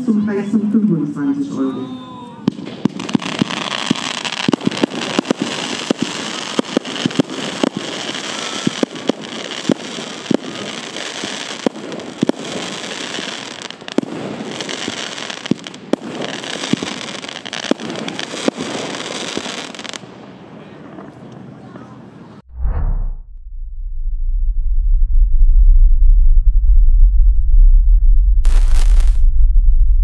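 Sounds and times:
fireworks bangs: 0.5 - 22.2, 28.4 - 29.2
fireworks crackling hiss: 1.7 - 20.1, 28.4 - 29.2.

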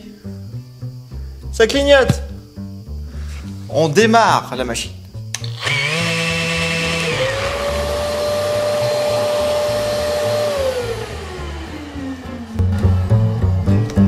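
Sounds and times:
sander motor whine: 5.4 - 13.5
dust extractor running: 5.4 - 13.6.

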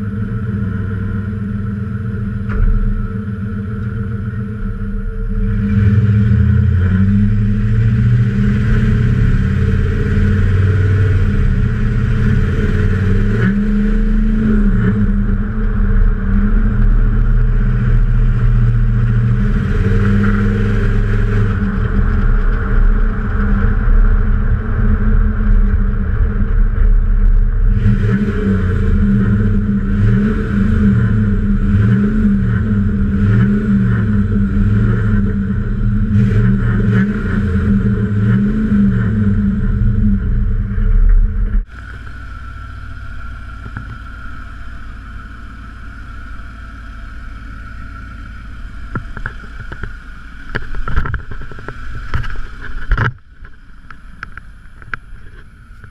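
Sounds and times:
loud truck engine exhaust revving: 0.0 - 25.9, 26.6 - 52.9
wind noise: 4.5 - 42.1, 48.7 - 55.9.

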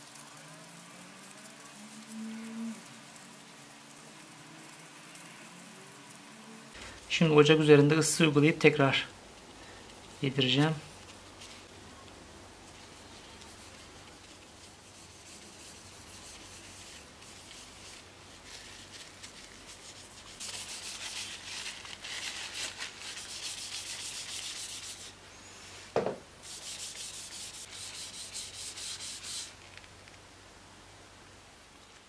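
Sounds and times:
tissue rubbing wooden handle: 12.8 - 29.7.

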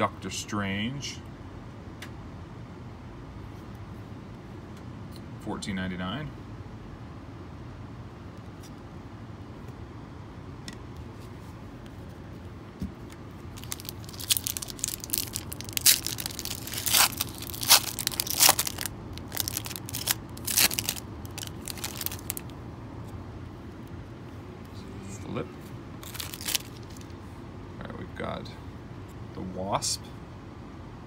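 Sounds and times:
foil wrapper tearing and crinkling: 13.6 - 22.5, 26.0 - 27.0.

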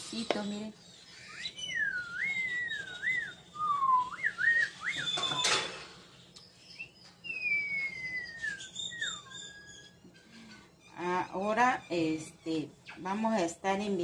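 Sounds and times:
person whistling: 1.2 - 5.5, 6.8 - 9.7.

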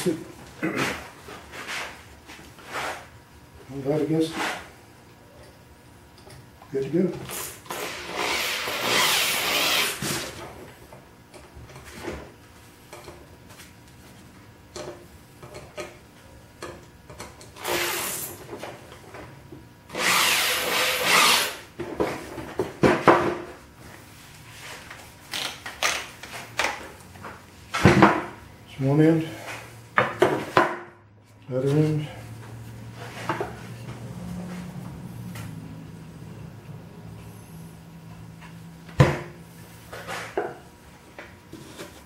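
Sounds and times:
cordless drill driving screws: 7.8 - 10.0, 19.9 - 21.6.

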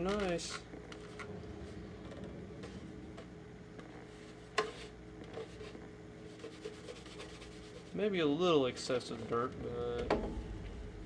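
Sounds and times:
rag rubbing plastic: 0.0 - 8.1
steady low hum: 0.0 - 11.0.

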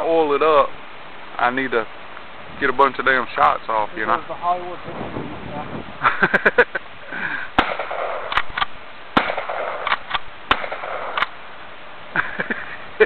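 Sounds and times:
gunshots: 7.6 - 11.3.

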